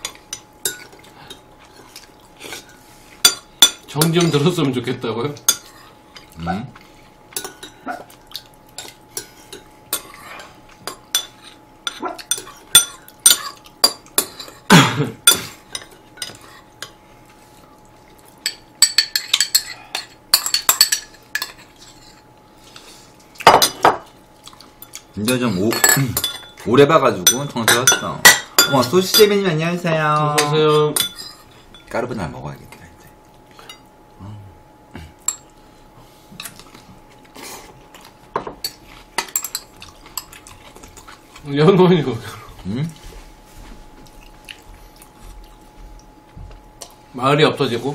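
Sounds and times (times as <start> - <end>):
cutlery clinking on porcelain: 0.0 - 1.4, 18.4 - 22.2, 24.8 - 29.4, 38.3 - 41.1
utensils clinking on bowls: 0.0 - 1.4, 3.2 - 4.7, 7.3 - 7.9, 8.8 - 17.0, 18.4 - 22.2, 24.8 - 29.5, 30.2 - 32.2, 37.9 - 41.2.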